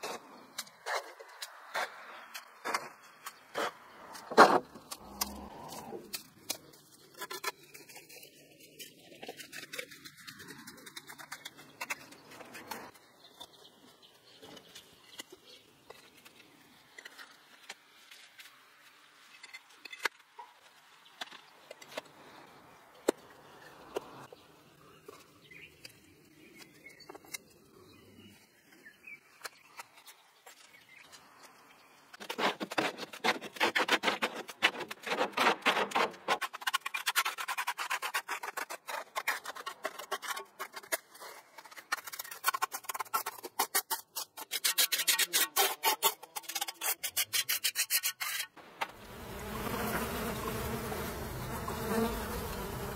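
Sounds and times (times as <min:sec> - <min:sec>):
trowel scraping concrete: 0:32.2 - 0:48.6.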